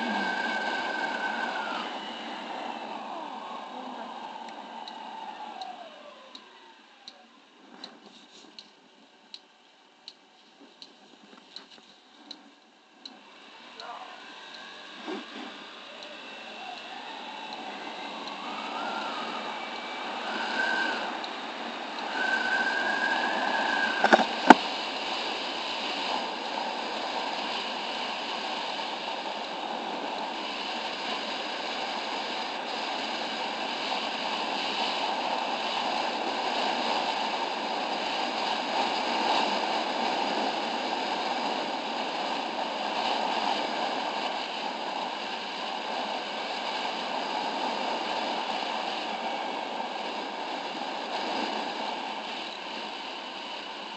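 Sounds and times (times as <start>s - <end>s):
wind and road noise: 0.0s - 53.9s
high whistle-like tone: 16.0s - 24.6s.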